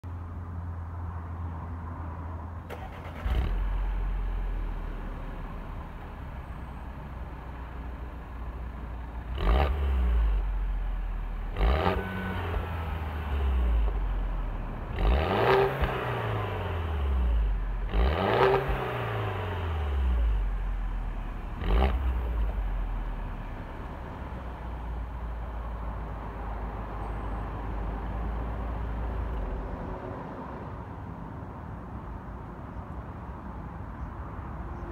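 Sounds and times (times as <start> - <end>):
car engine idling and revving: 2.6 - 29.9.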